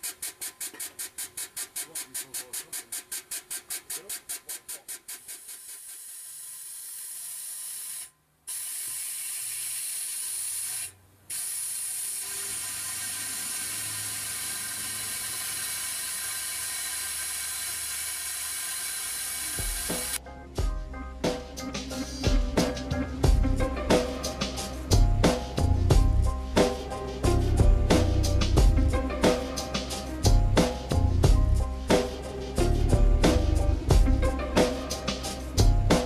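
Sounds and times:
air pump pulsing rapidly: 0:00.0 - 0:20.2.

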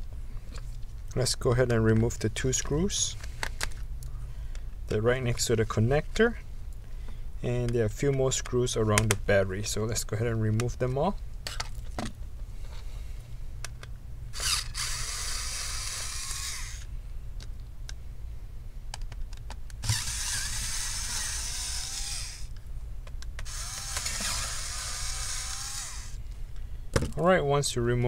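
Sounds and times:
electric screwdriver running: 0:14.4 - 0:16.9, 0:19.8 - 0:22.5, 0:23.4 - 0:26.2.

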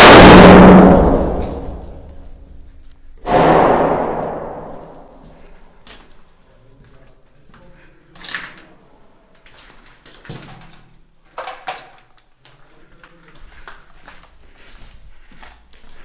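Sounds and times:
footsteps on gritty floor: 0:12.4 - 0:16.0.

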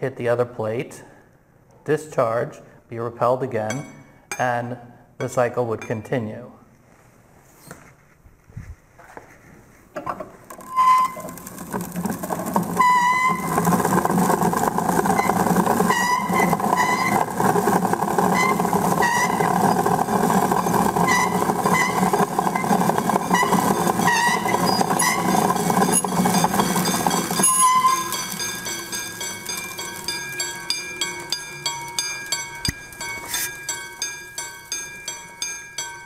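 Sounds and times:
electrostatic machine whirring: 0:11.1 - 0:33.5.

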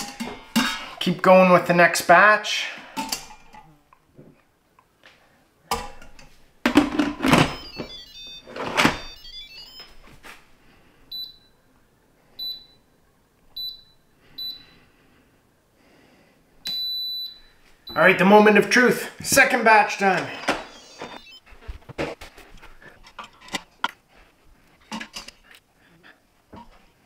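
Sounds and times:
touch panel beeps: 0:07.4 - 0:10.0, 0:20.6 - 0:21.4
electronic chime: 0:07.5 - 0:09.9, 0:20.6 - 0:21.4.

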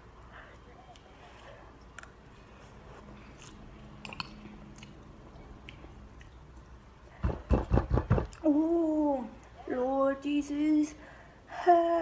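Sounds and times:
chewing and mouth clicks: 0:03.0 - 0:06.8.

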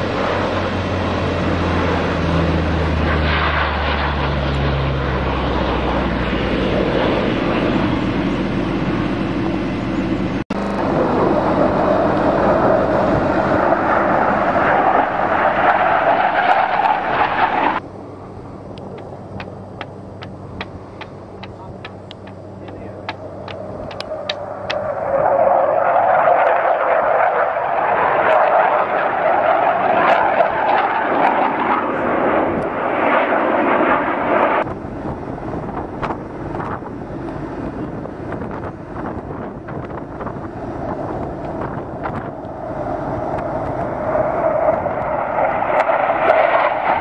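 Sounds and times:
aircraft engine rush: 0:00.0 - 0:47.0
scattered clicks: 0:18.7 - 0:24.8.

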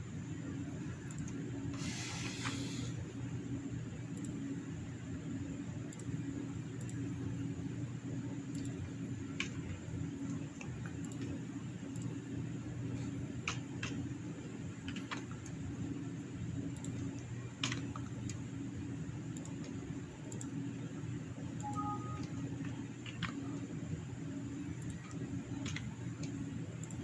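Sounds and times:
low machine hum: 0:00.0 - 0:27.0
computer mouse clicks: 0:01.1 - 0:02.8, 0:04.2 - 0:04.4, 0:08.5 - 0:12.2, 0:13.4 - 0:14.0, 0:14.8 - 0:15.6, 0:16.7 - 0:18.4, 0:19.3 - 0:20.6, 0:21.6 - 0:23.5, 0:24.8 - 0:27.0.

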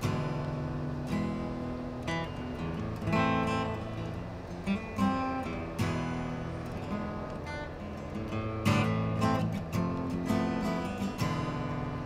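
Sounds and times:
solo guitar notes and chords: 0:00.0 - 0:12.0.

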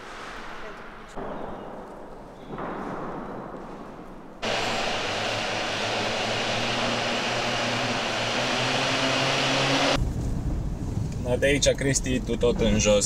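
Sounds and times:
steady rushing noise: 0:04.4 - 0:10.0.

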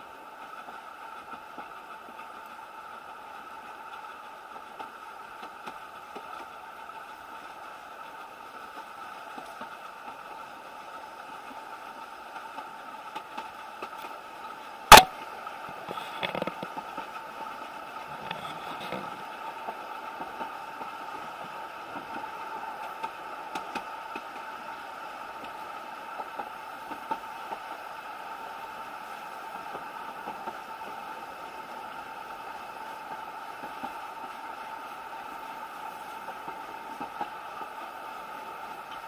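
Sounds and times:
railway carriage running noise: 0:00.0 - 0:39.0
loud sharp knock: 0:14.9 - 0:15.1.

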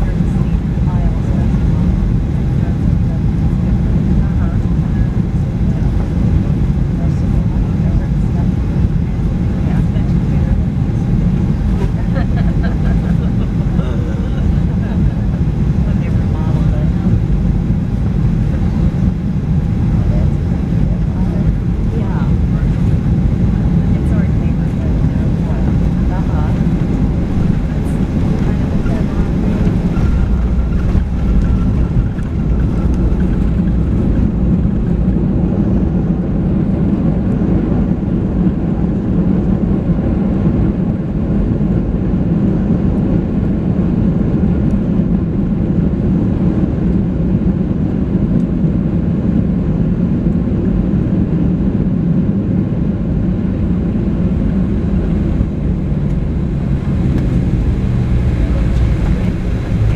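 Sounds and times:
airplane cabin rumble: 0:00.0 - 0:59.9.

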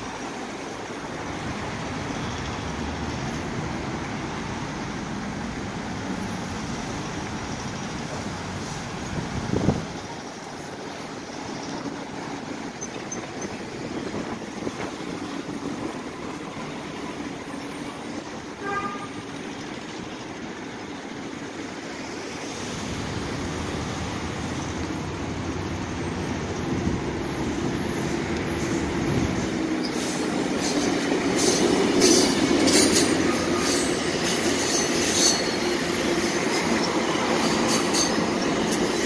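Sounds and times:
diesel locomotive rumble: 0:00.0 - 0:39.0
road traffic noise: 0:00.0 - 0:39.0
car horn toot: 0:18.6 - 0:19.1.

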